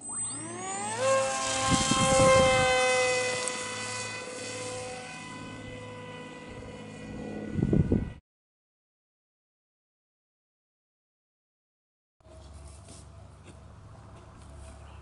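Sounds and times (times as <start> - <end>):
electric motor propeller whine: 0.0 - 8.2.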